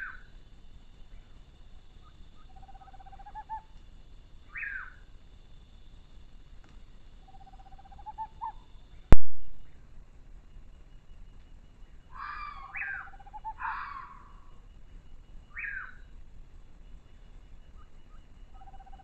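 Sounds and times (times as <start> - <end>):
night animal trill calls: 0.0 - 0.4, 1.0 - 5.5, 7.2 - 9.1, 11.9 - 16.2, 17.0 - 19.0
steady high hum: 0.0 - 19.0.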